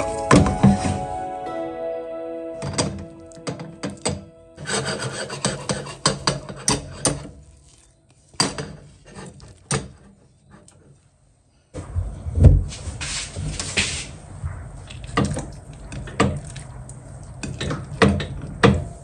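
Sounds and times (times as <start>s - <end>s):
handling noise scraping and rubbing: 4.0s - 11.1s, 12.6s - 15.1s.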